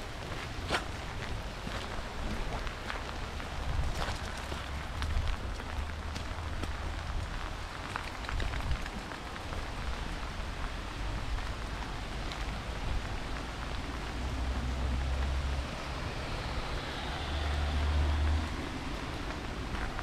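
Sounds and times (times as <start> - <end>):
rain on grass: 0.0 - 20.0
road traffic hum: 0.0 - 20.0.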